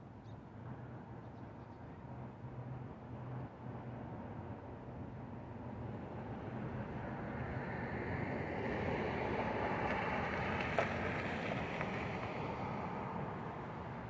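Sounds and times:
street traffic hum: 0.1s - 14.0s
car passing by: 5.7s - 14.0s.

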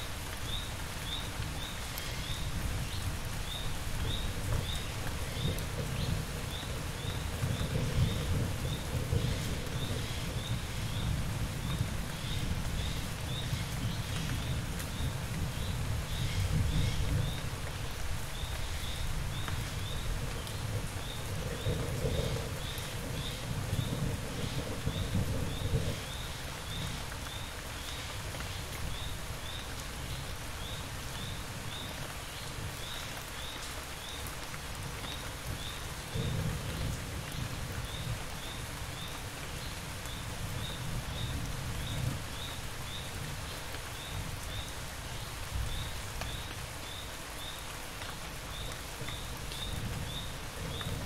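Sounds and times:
steady rain falling: 0.0s - 51.0s.

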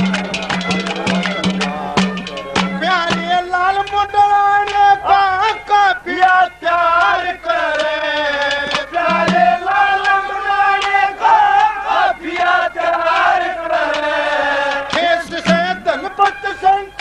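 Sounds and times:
drum strokes: 0.0s - 4.9s, 7.8s - 16.3s.

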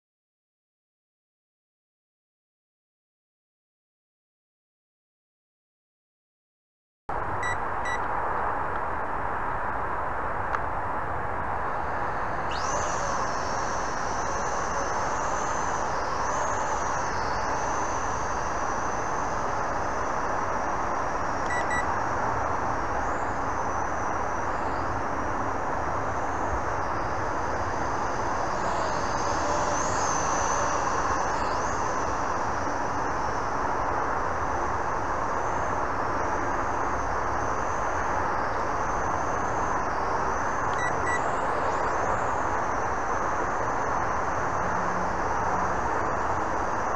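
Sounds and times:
steady rushing noise: 7.1s - 46.9s
toy drone motors whining: 12.0s - 20.0s, 26.9s - 33.2s.

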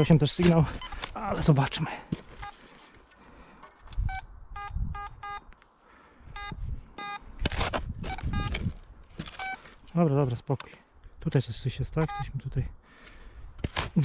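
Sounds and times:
rustling in dry undergrowth: 0.2s - 3.2s, 6.5s - 10.4s
metal detector beeps: 0.6s - 1.4s, 3.9s - 5.5s, 6.4s - 7.3s, 8.0s - 9.7s, 12.0s - 12.4s.

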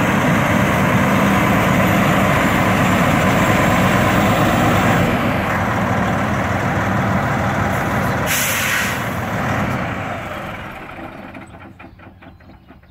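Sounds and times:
diesel engine idling: 0.0s - 12.9s
air brake hiss: 8.0s - 9.2s.

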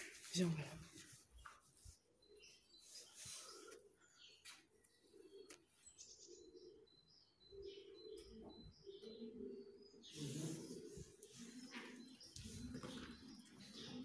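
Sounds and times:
bird cooing: 3.3s - 14.0s.

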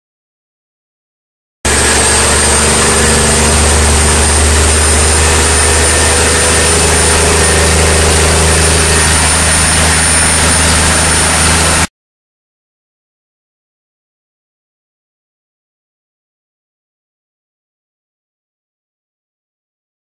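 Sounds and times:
diesel truck engine running: 1.7s - 11.9s
steady high whine: 1.7s - 11.9s.

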